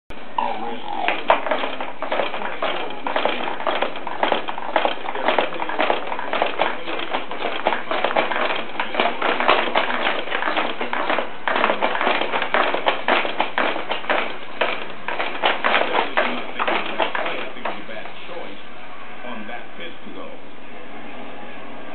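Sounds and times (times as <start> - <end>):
baby bouncer taps and clatters: 1.1 - 18.0.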